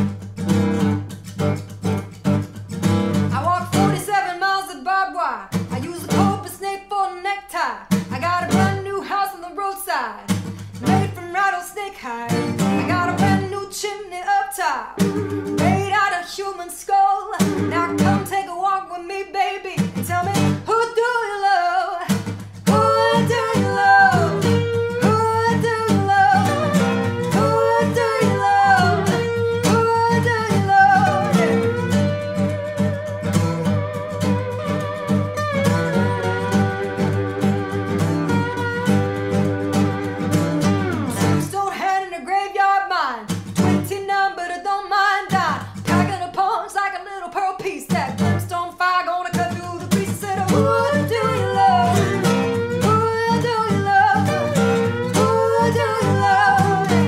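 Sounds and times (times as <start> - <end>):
acoustic guitar: 0.0 - 57.0
woman singing blues-rock: 3.3 - 33.1, 40.6 - 57.0
lap steel guitar: 12.3 - 13.6, 15.0 - 16.5, 17.3 - 18.7, 22.2 - 41.6, 43.4 - 44.0, 49.6 - 57.0.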